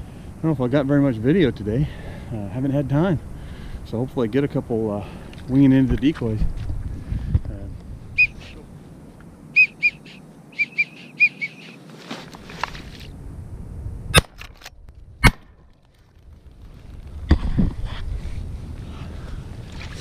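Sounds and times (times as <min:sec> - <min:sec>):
whistled duck calls: 0:08.2 - 0:08.6, 0:09.5 - 0:11.8.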